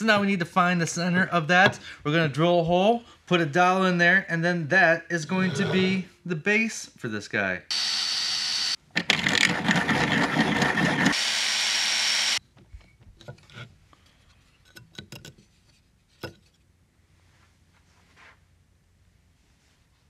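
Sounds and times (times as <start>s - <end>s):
cordless drill boring into wood: 7.7s - 12.4s.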